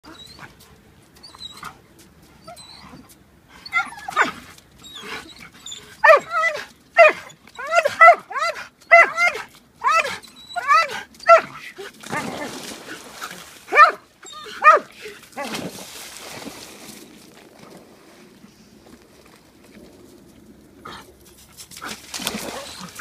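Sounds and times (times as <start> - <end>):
dog barking excitedly: 3.8 - 4.4, 6.0 - 12.4, 13.7 - 15.6.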